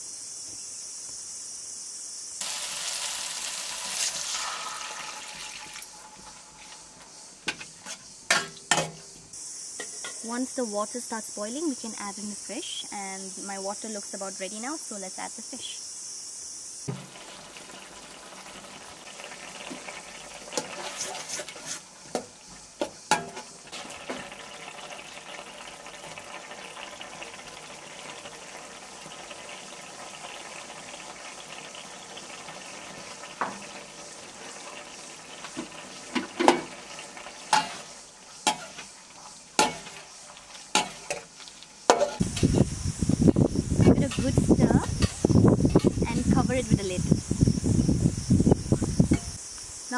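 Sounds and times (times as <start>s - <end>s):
curry bubbling in pan: 2.4s - 8.4s, 16.9s - 42.9s
metal spoon clinking on pan: 41.9s - 42.2s.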